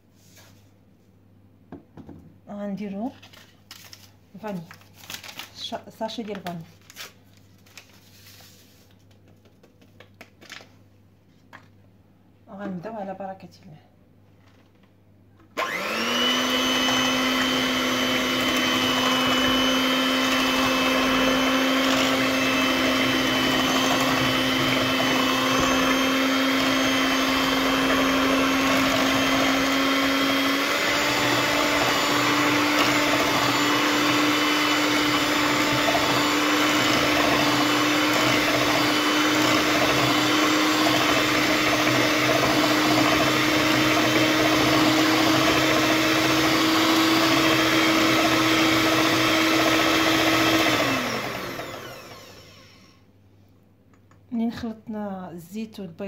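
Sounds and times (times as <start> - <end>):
electric hand mixer whining: 15.6 - 53.1.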